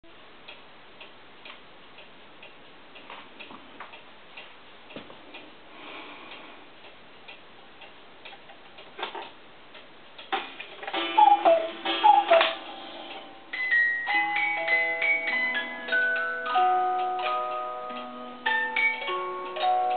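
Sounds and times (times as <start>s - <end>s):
cuckoo clock ticking: 6.3s - 19.9s.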